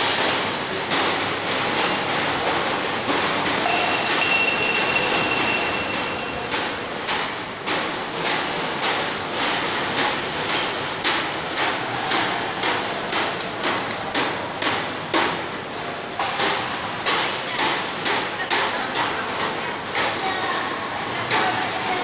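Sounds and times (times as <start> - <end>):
metal glasses clanking on metal table: 3.6 - 6.8.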